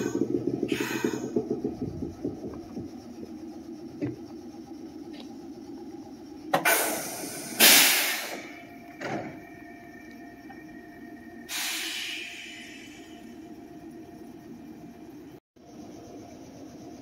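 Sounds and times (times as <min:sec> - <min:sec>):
train low hum: 0:00.0 - 0:17.0
compressed-air hiss from doors: 0:06.6 - 0:08.4.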